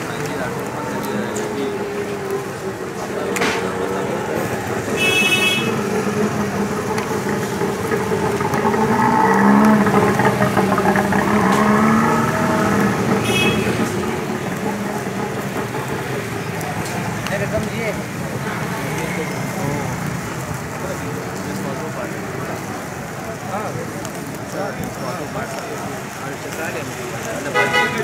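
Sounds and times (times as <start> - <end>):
street traffic: 0.0 - 28.0
vehicle horn tooting: 5.0 - 5.9, 13.2 - 13.9, 27.5 - 28.0.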